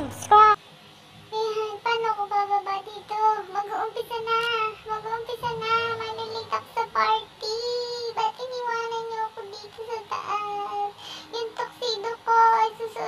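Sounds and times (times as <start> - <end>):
high-pitched child-like singing: 1.3 - 13.0.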